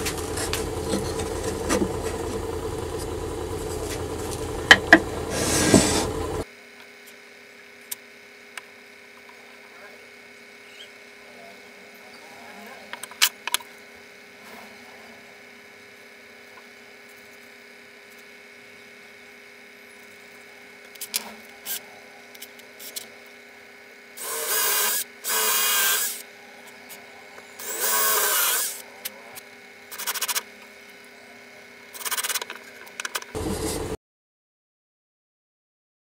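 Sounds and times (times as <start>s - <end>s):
cordless drill running: 24.2s - 26.3s, 27.6s - 28.8s.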